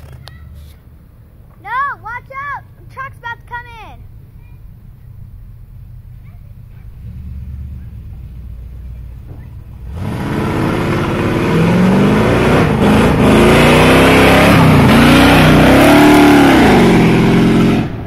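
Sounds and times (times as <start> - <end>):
truck engine accelerating past: 5.6 - 18.0.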